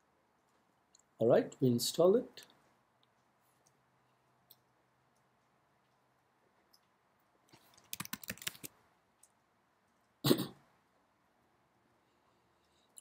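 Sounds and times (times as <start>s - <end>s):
faint clicks: 4.4s - 6.1s
typing on computer keyboard: 7.6s - 8.8s
person coughing: 10.2s - 10.6s.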